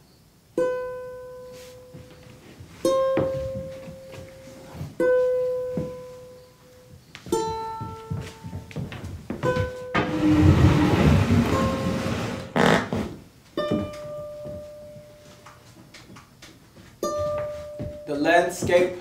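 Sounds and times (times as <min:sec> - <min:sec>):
acoustic guitar plucked notes: 0:00.6 - 0:02.0, 0:02.8 - 0:04.1, 0:04.9 - 0:06.5, 0:07.3 - 0:08.6, 0:17.0 - 0:19.0
soft knocks: 0:03.1 - 0:04.2, 0:07.0 - 0:11.9.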